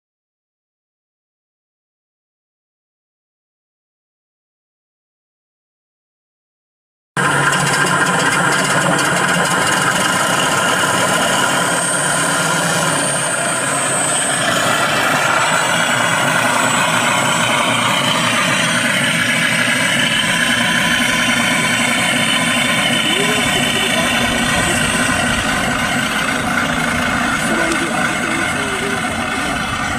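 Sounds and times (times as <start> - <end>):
model plane motor and propeller: 7.2 - 29.9.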